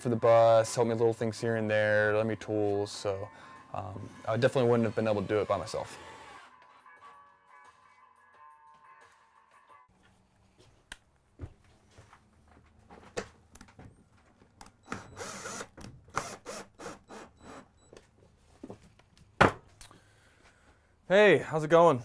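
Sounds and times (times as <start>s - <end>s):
power drill running: 3.8s - 6.6s, 14.9s - 17.7s.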